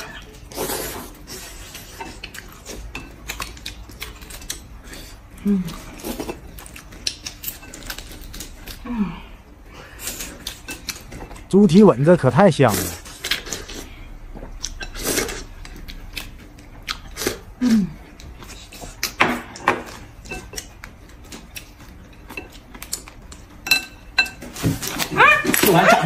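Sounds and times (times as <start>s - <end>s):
chewing and biting: 1.4s - 8.8s, 14.5s - 17.4s.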